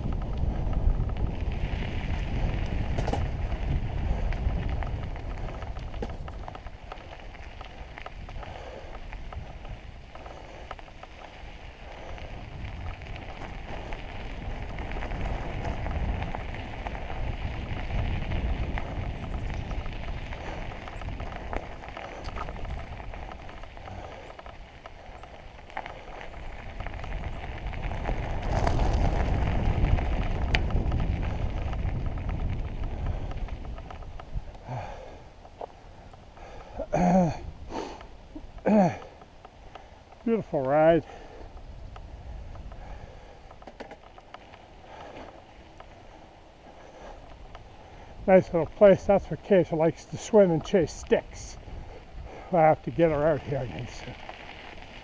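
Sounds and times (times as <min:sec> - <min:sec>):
bike clicks and rattles: 0:00.0 - 0:55.0
tyres rolling on gravel: 0:00.0 - 0:55.0
wind rumbling on microphone: 0:00.0 - 0:55.0.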